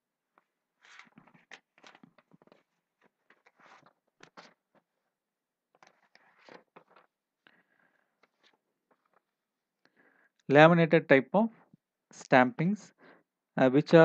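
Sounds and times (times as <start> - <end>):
faint rustles and clicks: 0.4 - 9.4.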